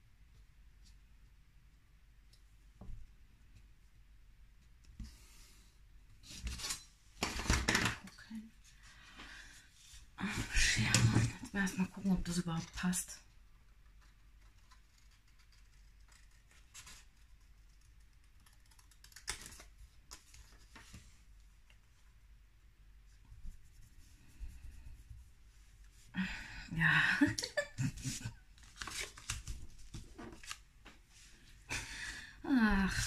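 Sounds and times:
paper rustling and scraping: 16.0 - 17.3, 28.1 - 30.6.

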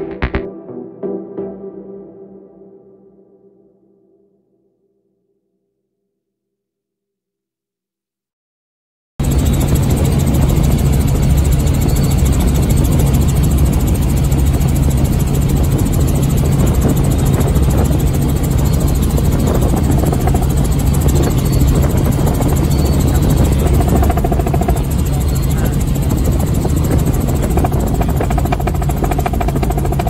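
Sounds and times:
helicopter engine and rotor drone: 9.2 - 30.0.

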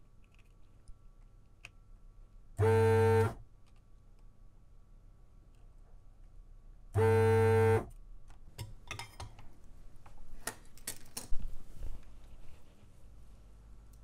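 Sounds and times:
desoldering pump buzzing: 2.6 - 3.4, 7.0 - 7.9.

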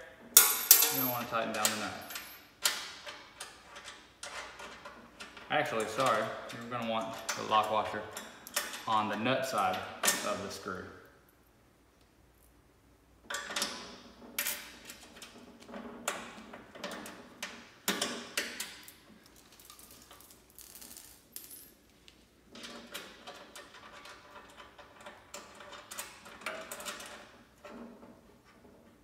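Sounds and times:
small metal hardware clinking: 0.4 - 2.8.

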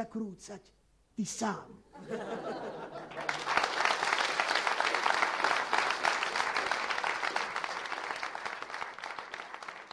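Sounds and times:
audience applauding: 2.9 - 9.9.

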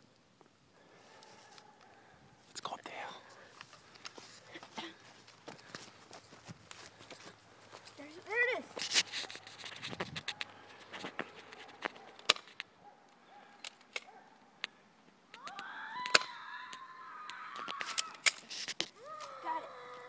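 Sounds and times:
long high-pitched cry: 15.4 - 18.2, 19.0 - 20.0.

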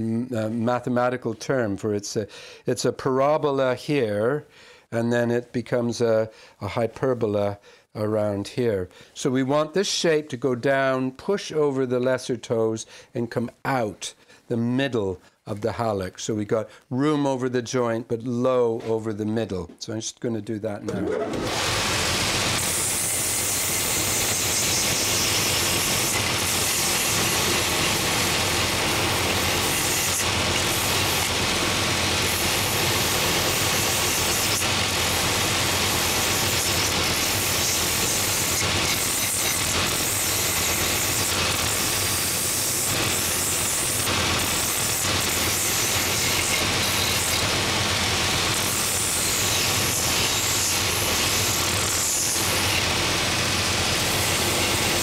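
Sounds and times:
belt sander grinding wood: 20.9 - 55.0.

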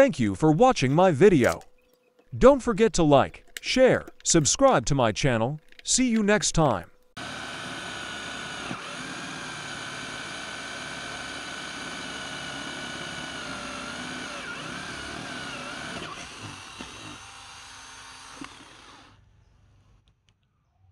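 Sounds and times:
cordless drill whining: 7.2 - 19.2.

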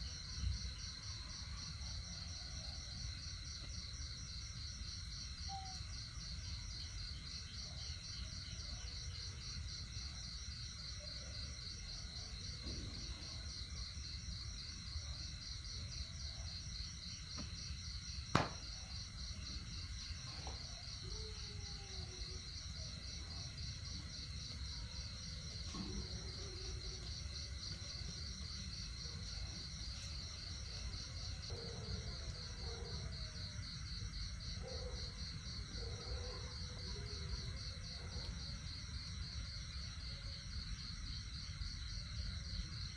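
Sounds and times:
insect chorus trilling: 5.2 - 7.8, 18.3 - 33.3.

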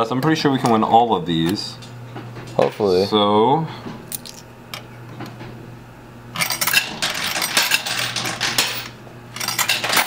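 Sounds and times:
low steady hum: 0.0 - 10.0
coins clinking and clattering: 6.4 - 10.0.

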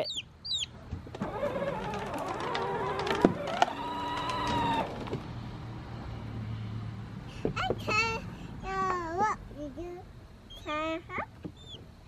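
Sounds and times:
electric toy motor whining: 1.2 - 5.1.

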